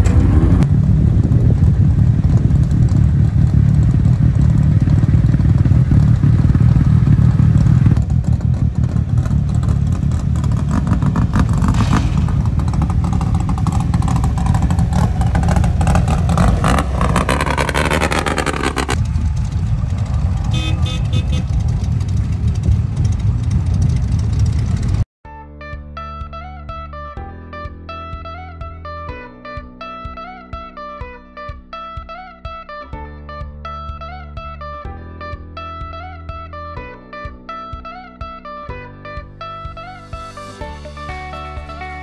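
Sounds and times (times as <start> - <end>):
engine revving up: 0.0 - 0.9, 2.9 - 25.0
off-road vehicle engines rumbling: 0.0 - 25.1.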